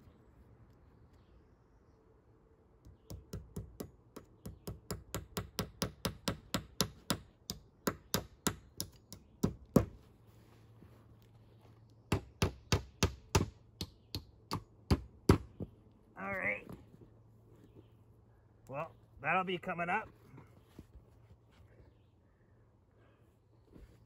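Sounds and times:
hammer striking nails: 3.0 - 9.9, 12.1 - 15.5.

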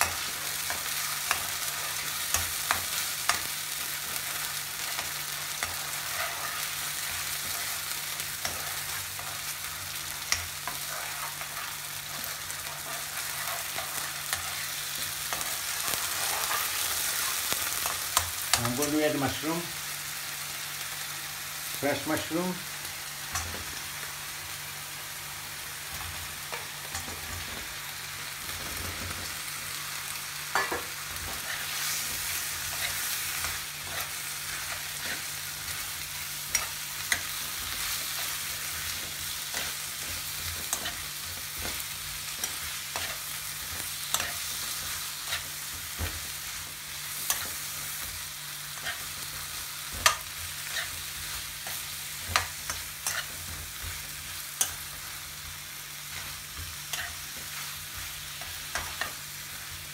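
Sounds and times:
food sizzling in a wok: 0.0 - 59.9
metal spoon scraping a pan: 4.8 - 6.8, 49.9 - 54.0, 56.1 - 59.2.

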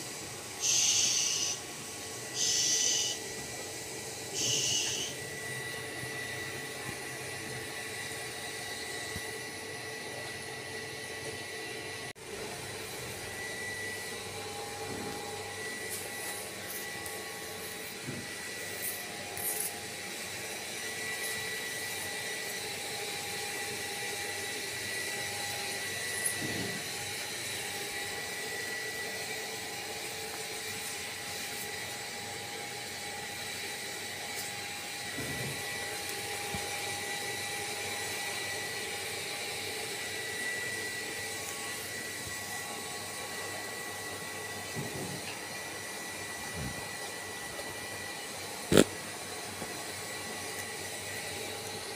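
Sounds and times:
steady whirring hum: 0.0 - 51.9.

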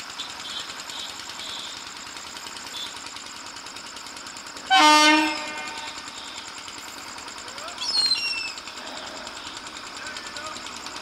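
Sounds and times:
locomotive air horn honk: 4.7 - 6.1.

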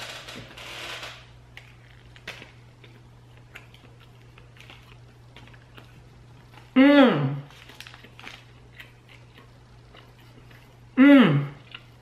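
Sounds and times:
steady low hum: 0.0 - 12.0
sandwich rustling: 7.5 - 10.9.

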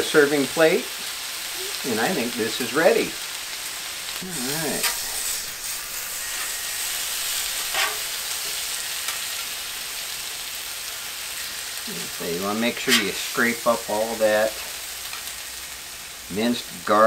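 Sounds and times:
meat sizzling on a griddle: 0.0 - 17.0
metal spatula scraping griddle: 4.2 - 10.4, 12.4 - 15.5.

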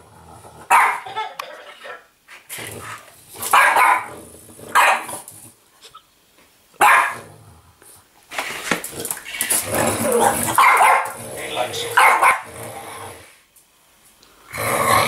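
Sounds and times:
dog barking and growling: 0.0 - 5.5, 6.8 - 7.6, 8.9 - 13.3.

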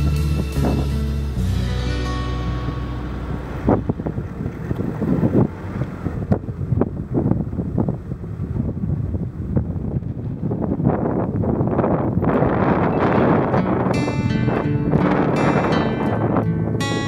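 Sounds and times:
music: 0.0 - 4.1, 12.9 - 17.0
wind buffeting microphone: 0.0 - 17.0.

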